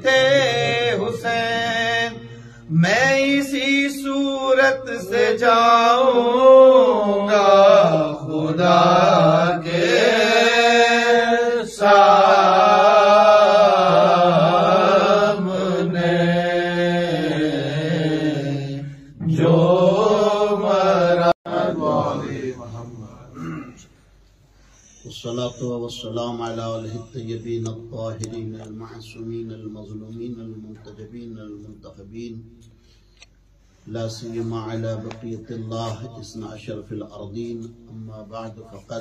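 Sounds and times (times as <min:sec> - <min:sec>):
man chanting: 0:00.0 - 0:23.8, 0:25.0 - 0:32.6, 0:33.9 - 0:39.0
short breaths: 0:02.3 - 0:02.7, 0:24.5 - 0:25.1.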